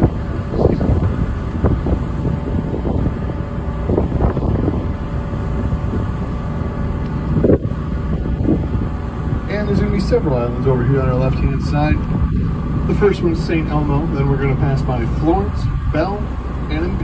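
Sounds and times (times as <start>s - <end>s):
boat engine rumbling: 0.0s - 17.0s
wind buffeting microphone: 0.0s - 17.0s.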